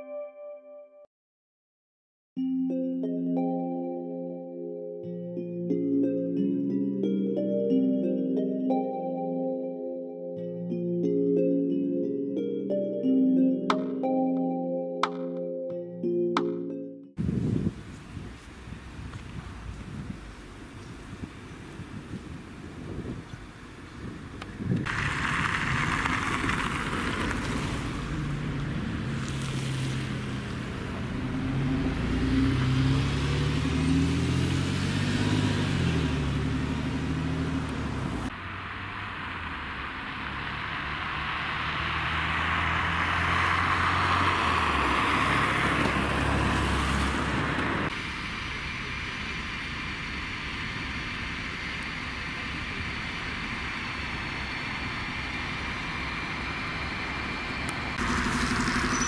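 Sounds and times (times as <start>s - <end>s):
steady traffic noise: 17.2s - 59.0s
buses idling in traffic jam: 17.7s - 32.2s, 35.6s - 59.0s
vehicle engine driving past: 24.9s - 48.5s, 55.6s - 59.0s.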